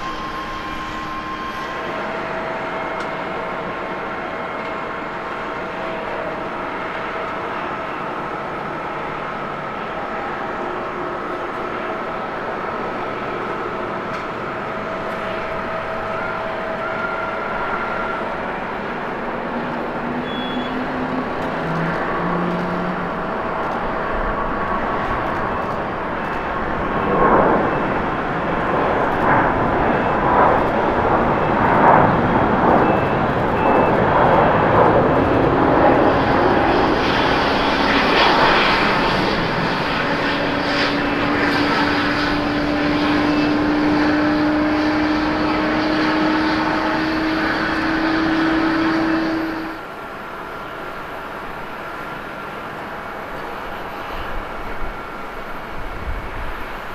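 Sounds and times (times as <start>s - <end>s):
jet engines roaring: 0.0s - 56.9s.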